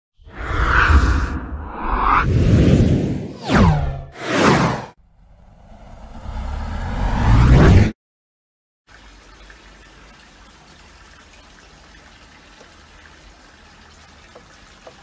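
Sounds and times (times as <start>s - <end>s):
loud whoosh rising in pitch: 0.2s - 8.0s.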